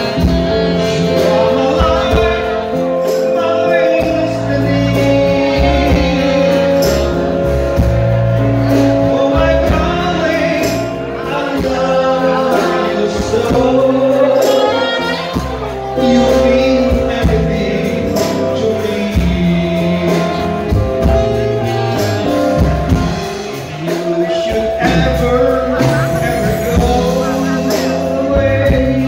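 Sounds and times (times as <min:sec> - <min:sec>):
drums: 0:00.0 - 0:29.0
man singing into a microphone: 0:00.0 - 0:29.0
saxophone: 0:00.0 - 0:29.0.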